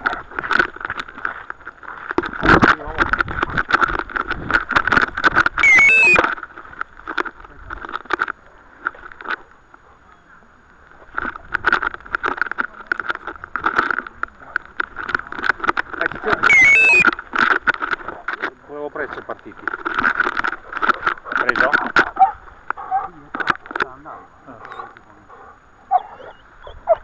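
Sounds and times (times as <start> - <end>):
bumping and rustling through grass: 0.0 - 9.5.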